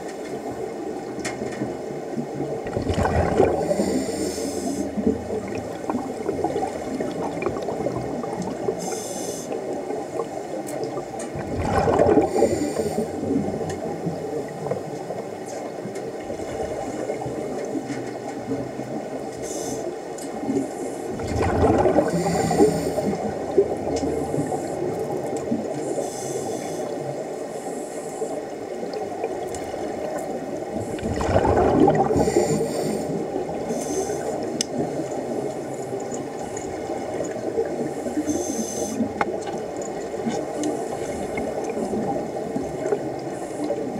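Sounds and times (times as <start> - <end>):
steady underwater rush: 0.0 - 43.9
regulator exhalation bubbles gurgling: 2.6 - 8.9, 10.9 - 14.7, 21.1 - 25.7, 30.1 - 43.9
faint hiss of inhalation: 3.7 - 4.9, 8.8 - 9.6, 12.4 - 13.2, 19.4 - 20.0, 25.9 - 28.4, 32.2 - 34.4, 38.2 - 39.1.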